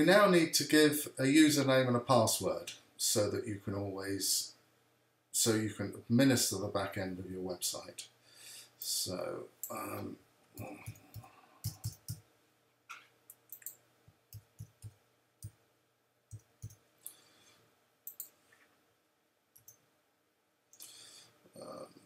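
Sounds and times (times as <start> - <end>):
computer keyboard typing: 10.6 - 12.2, 13.4 - 14.9.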